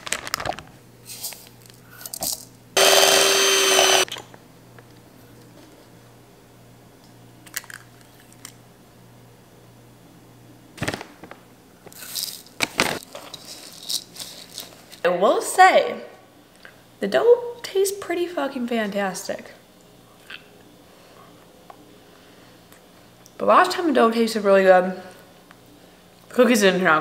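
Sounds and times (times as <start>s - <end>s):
electric hand mixer running: 2.8s - 4.1s.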